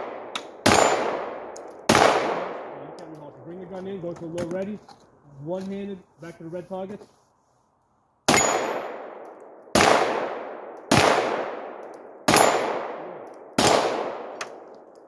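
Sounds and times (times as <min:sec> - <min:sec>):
pistol shots echoing: 0:00.0 - 0:03.1, 0:08.3 - 0:14.9.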